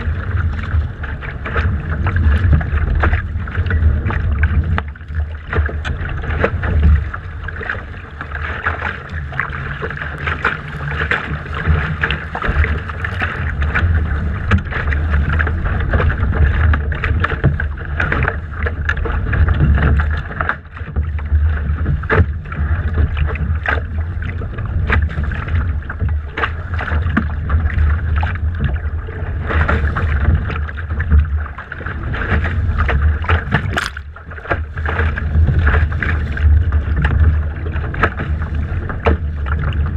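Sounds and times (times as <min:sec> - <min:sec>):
water slapping against hull: 0:00.0 - 0:39.9
short knocks and splashes: 0:29.4 - 0:39.9.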